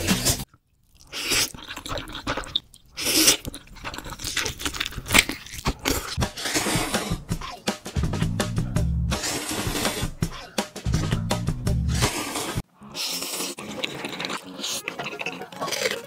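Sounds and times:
slurping noodles: 0:00.0 - 0:08.0, 0:08.6 - 0:16.0
wet crunchy chewing: 0:00.2 - 0:07.6, 0:12.9 - 0:16.0.

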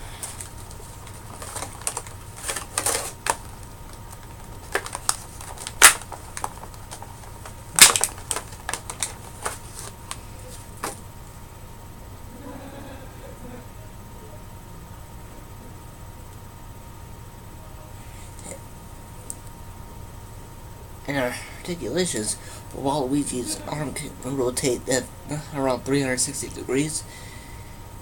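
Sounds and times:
plastic packaging clicks and crinkles: 0:00.2 - 0:11.0
loud plastic snaps: 0:04.1 - 0:09.6.

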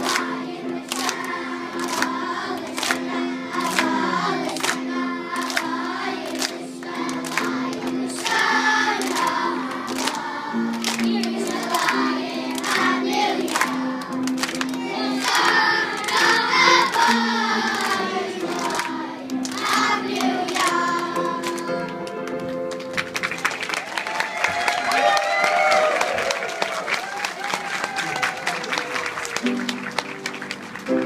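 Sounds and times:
boys choir singing: 0:00.0 - 0:14.0, 0:14.8 - 0:21.4.

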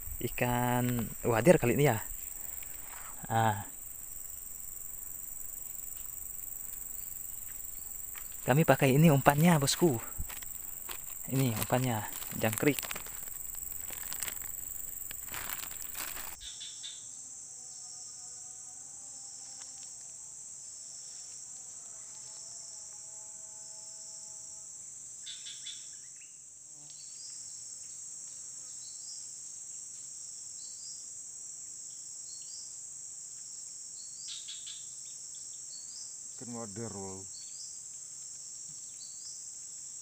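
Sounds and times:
high-pitched insect chorus: 0:00.0 - 0:40.0
rustling and handling noise: 0:03.8 - 0:16.4.

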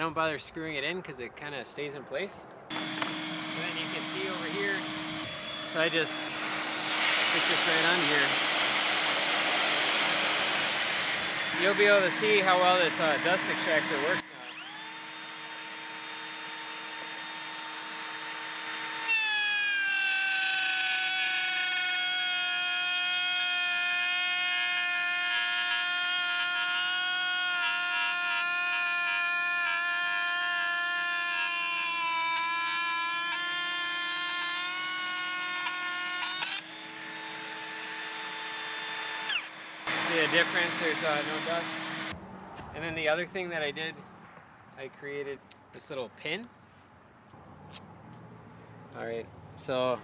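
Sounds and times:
router cutting wood: 0:02.7 - 0:42.2
router whining: 0:02.7 - 0:42.2.

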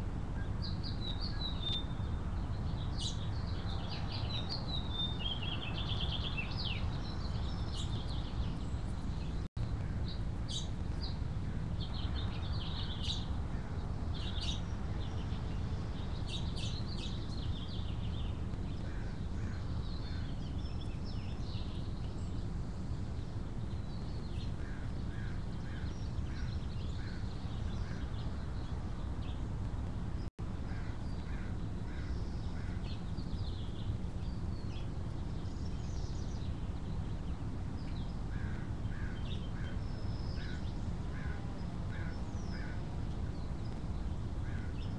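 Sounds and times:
wild birds chirping: 0:00.4 - 0:44.9
low bird calls: 0:16.0 - 0:22.6, 0:23.2 - 0:28.8, 0:30.6 - 0:44.9.

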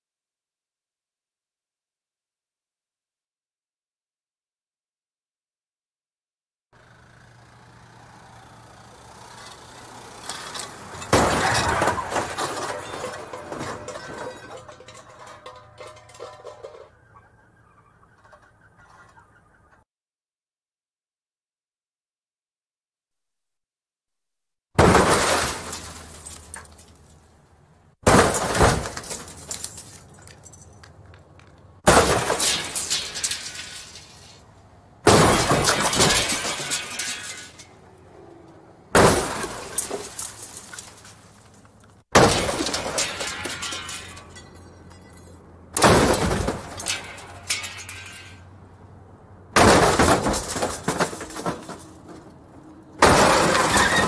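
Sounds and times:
car crashes: 0:07.2 - 0:17.0, 0:24.8 - 0:27.3, 0:28.0 - 0:30.7, 0:31.8 - 0:37.8, 0:38.9 - 0:48.6, 0:49.5 - 0:54.0
debris rattling and tinkling: 0:09.4 - 0:17.0, 0:24.9 - 0:27.4, 0:28.1 - 0:31.1, 0:31.9 - 0:34.4, 0:35.1 - 0:37.8, 0:39.1 - 0:41.6, 0:42.2 - 0:48.6, 0:49.6 - 0:52.4
shattering glass: 0:10.3 - 0:16.8, 0:24.8 - 0:27.2, 0:28.0 - 0:30.8, 0:31.9 - 0:34.4, 0:35.1 - 0:37.8, 0:39.0 - 0:41.4, 0:42.2 - 0:48.5, 0:49.6 - 0:51.8, 0:53.0 - 0:54.0.

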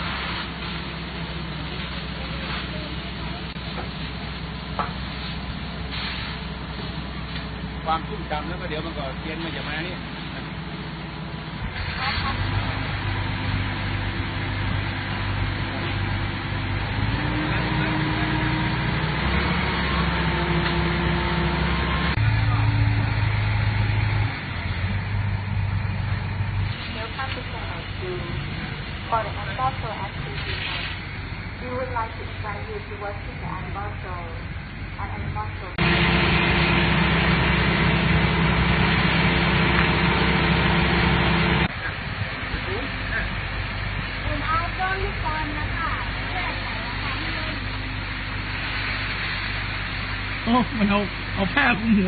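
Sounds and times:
water cannon spray hissing: 0:00.0 - 0:08.2, 0:26.6 - 0:28.0, 0:29.7 - 0:31.4, 0:35.8 - 0:41.7, 0:44.0 - 0:52.0
fire truck engine and pump: 0:00.0 - 0:52.0.

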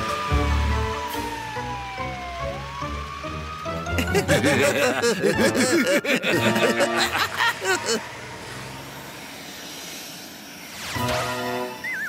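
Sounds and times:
cartoon villains laughing: 0:03.9 - 0:08.1.

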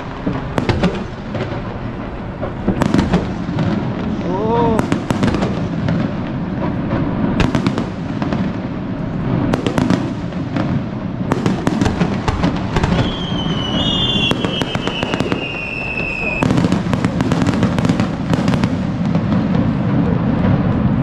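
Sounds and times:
fireworks bangs and crackling: 0:00.0 - 0:21.0
descending firework whistle: 0:09.0 - 0:21.0.

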